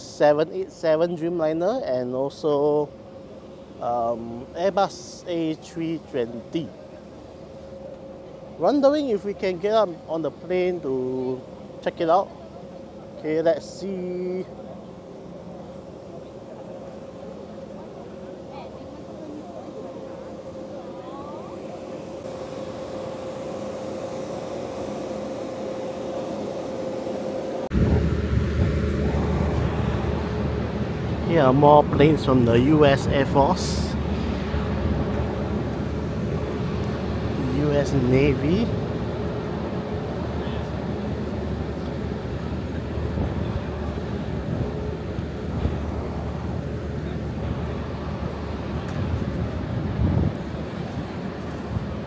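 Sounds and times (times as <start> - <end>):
mechanical hum: 0.0 - 52.0
outdoor noise: 0.0 - 52.0
faint voices: 5.9 - 23.7.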